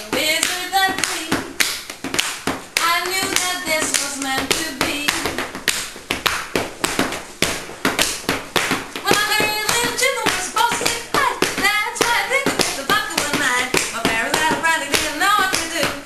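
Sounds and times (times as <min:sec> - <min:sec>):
palms slapping and clapping: 0:00.0 - 0:16.0.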